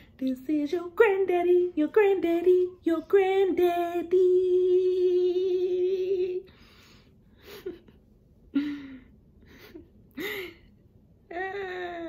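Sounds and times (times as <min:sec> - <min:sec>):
woman singing long note: 0:00.2 - 0:06.5.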